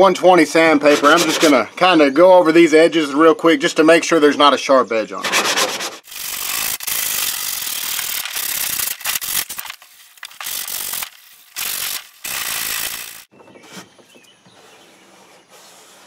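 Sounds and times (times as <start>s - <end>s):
sandpaper scratching on plastic: 0.8s - 1.6s, 5.2s - 13.3s, 14.6s - 16.0s.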